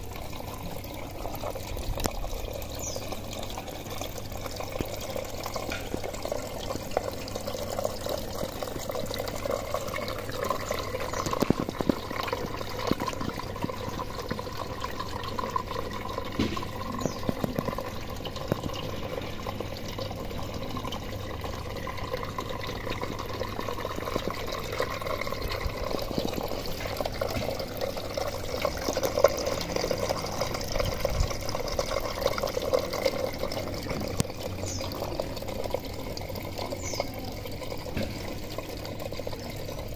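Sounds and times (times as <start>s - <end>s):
water pouring and trickling: 0.0s - 39.9s.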